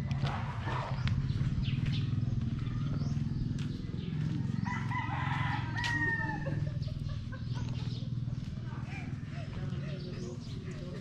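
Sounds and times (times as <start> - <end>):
steady low rumble: 0.0 - 11.0
rooster crowing: 4.5 - 6.6.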